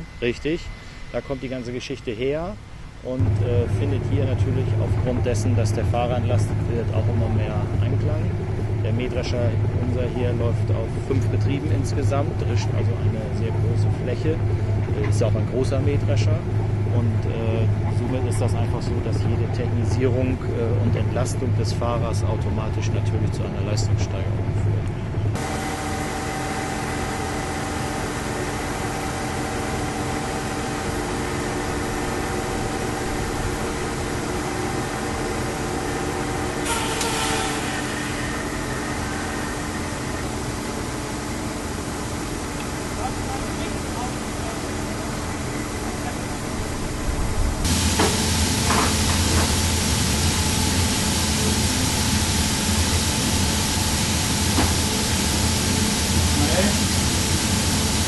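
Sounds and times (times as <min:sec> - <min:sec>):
faint steady whine: 0:00.0 - 0:58.0
low hum: 0:00.0 - 0:58.0
tractor engine idling: 0:25.3 - 0:51.8
loud machine hiss: 0:25.4 - 0:46.6, 0:47.6 - 0:58.0.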